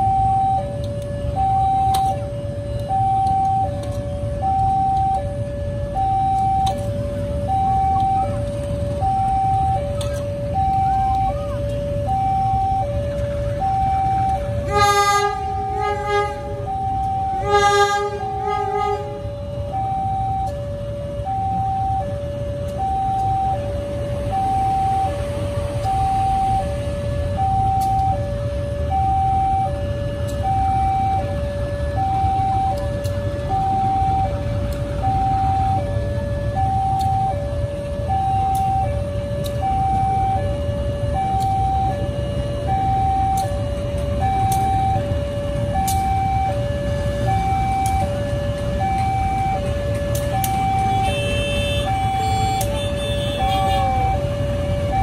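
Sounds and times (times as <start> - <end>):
diesel engine rumble: 0.0 - 55.0
two-tone crossing alarm: 0.0 - 55.0
locomotive horn blasts: 14.6 - 19.6, 50.7 - 54.2.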